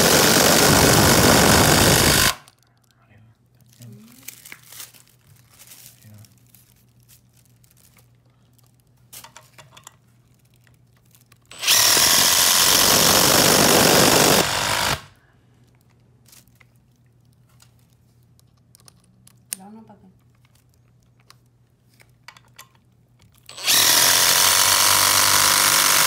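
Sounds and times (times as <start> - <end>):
impact driver hammering screw: 0.0 - 2.5, 11.5 - 15.1, 23.5 - 26.0.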